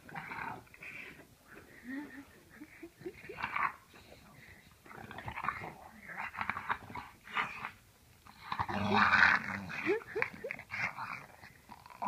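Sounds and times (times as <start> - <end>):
dog grunting and wheezing: 8.3 - 12.0.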